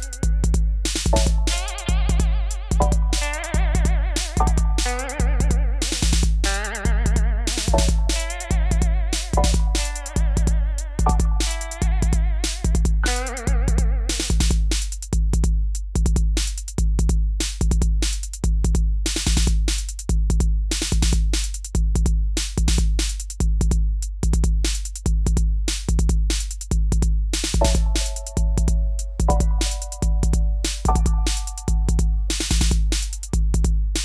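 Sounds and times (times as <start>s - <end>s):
drum-machine beat with heavy bass: 0.0s - 34.0s
electronic melody line: 1.1s - 5.9s, 6.7s - 13.6s, 27.6s - 32.4s.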